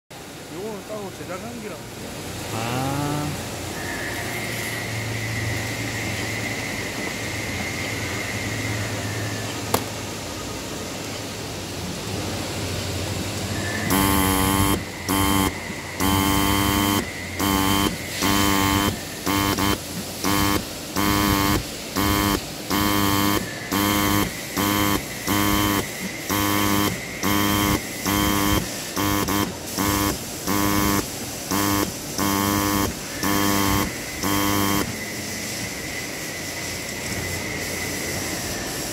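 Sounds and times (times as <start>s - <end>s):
steady hiss: 0.2s - 38.9s
marking pin striking in buzzing bursts: 13.6s - 35.1s.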